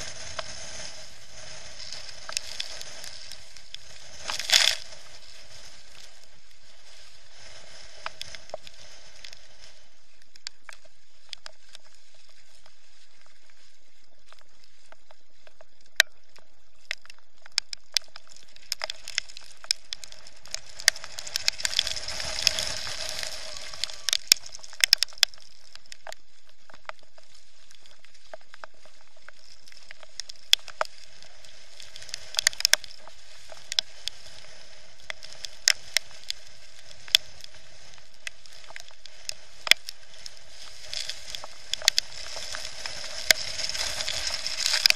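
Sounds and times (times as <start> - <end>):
rush of water and wind: 0.0 - 14.0, 18.0 - 44.9
muffled hiss: 0.0 - 44.9.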